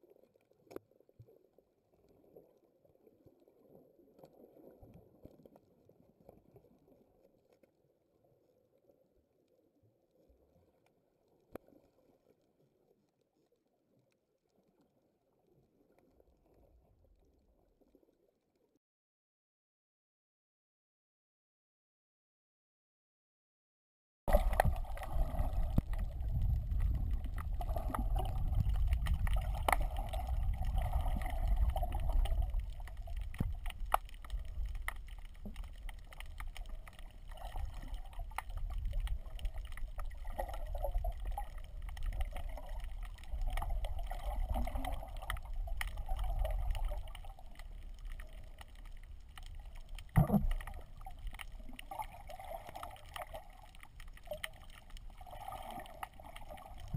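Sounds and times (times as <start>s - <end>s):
muffled underwater water rumble: 24.3s - 56.9s
underwater clicks: 24.3s - 56.9s.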